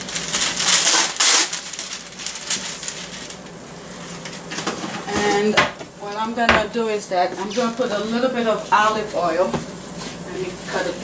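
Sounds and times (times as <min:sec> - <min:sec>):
wax paper crinkling: 0:00.0 - 0:04.7.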